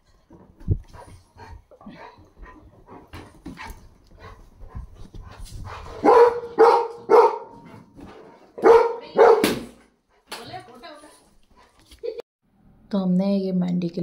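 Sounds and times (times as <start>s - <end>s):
dog barking: 6.0s - 7.7s, 8.6s - 9.7s.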